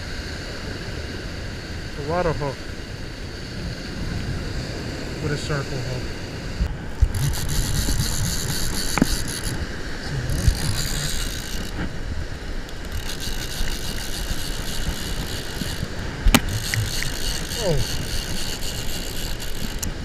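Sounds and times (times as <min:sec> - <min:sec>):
wind buffeting microphone: 0:03.3 - 0:20.0
fishing reel whirring and ticking: 0:06.6 - 0:20.0.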